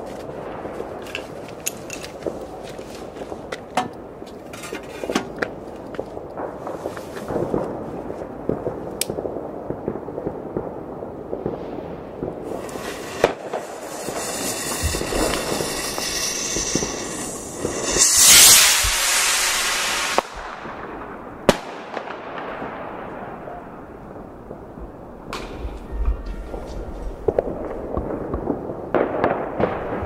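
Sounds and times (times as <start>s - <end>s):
fireworks popping and crackling: 0.0s - 23.6s, 24.5s - 30.0s
sharp firework crack: 11.4s - 23.1s
rocket fuse hissing: 12.5s - 20.6s.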